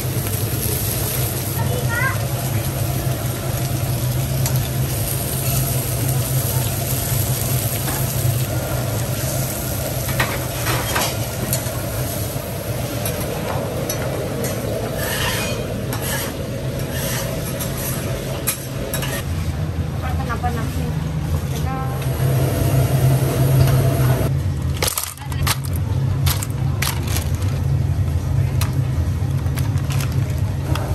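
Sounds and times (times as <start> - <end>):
fish sizzling on griddle: 0.0 - 12.6.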